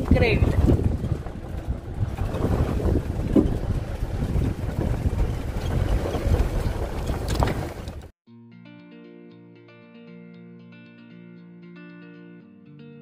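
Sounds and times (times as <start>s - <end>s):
wind buffeting microphone: 0.0s - 8.1s.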